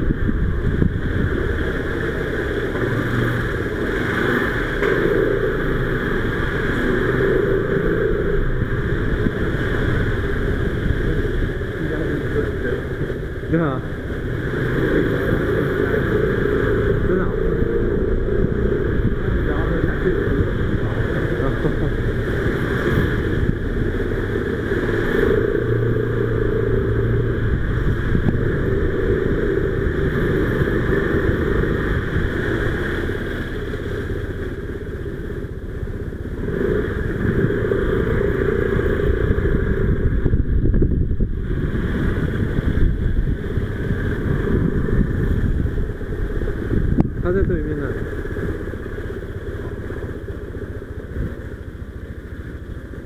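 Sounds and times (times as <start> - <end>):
motor scooter engine running: 0.0 - 53.0
road noise: 0.0 - 53.0.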